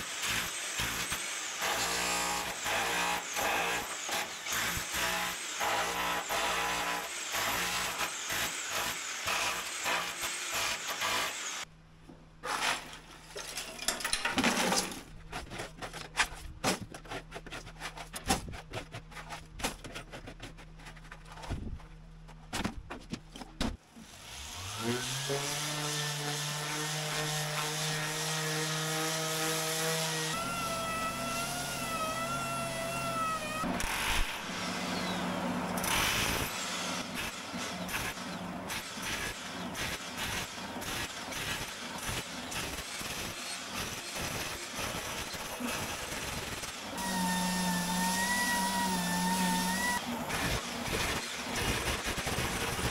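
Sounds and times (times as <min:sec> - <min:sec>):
electric chipping hammer hammering: 0:00.0 - 0:11.7, 0:24.4 - 0:52.9
power tool motor whining: 0:29.8 - 0:38.2, 0:45.2 - 0:52.9.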